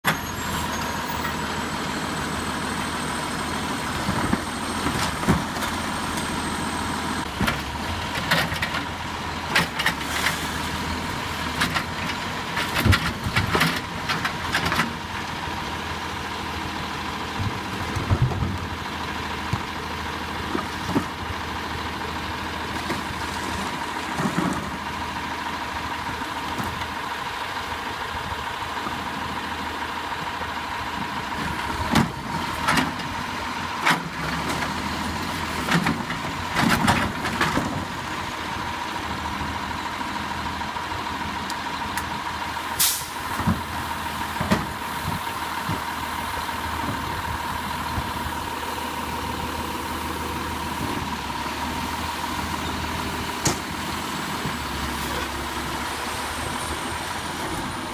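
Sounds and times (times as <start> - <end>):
garbage truck engine idling: 8.8 - 57.9
trash carts banging against truck: 33.8 - 37.9, 43.3 - 45.9.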